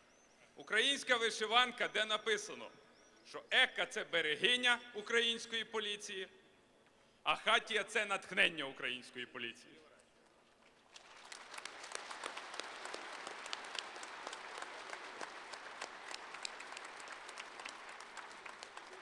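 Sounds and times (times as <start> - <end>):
audience applauding: 10.8 - 19.0.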